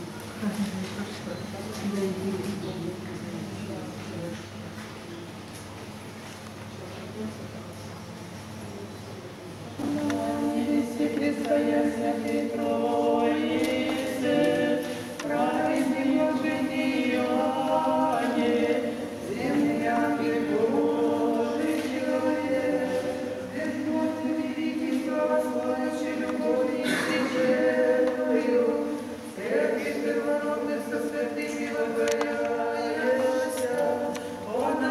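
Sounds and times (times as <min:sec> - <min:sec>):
choir singing chant: 0:09.8 - 0:34.9.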